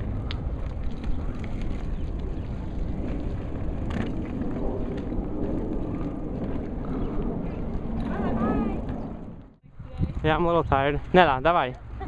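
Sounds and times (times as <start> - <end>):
wheels rolling on concrete: 0.0 - 11.8
wind on microphone: 0.0 - 12.0.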